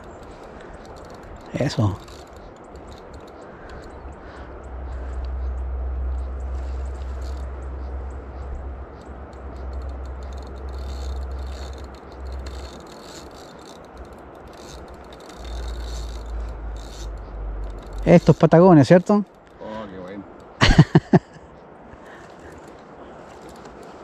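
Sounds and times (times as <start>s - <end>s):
small clicks and scrapes: 0.0s - 20.6s, 21.5s - 24.0s
rushing outdoor noise: 0.0s - 24.0s
low rumble: 3.7s - 12.6s.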